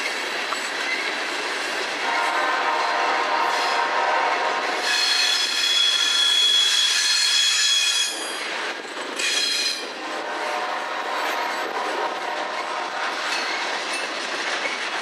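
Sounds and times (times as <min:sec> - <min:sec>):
high-pitched wheel squeal: 0:04.8 - 0:08.4.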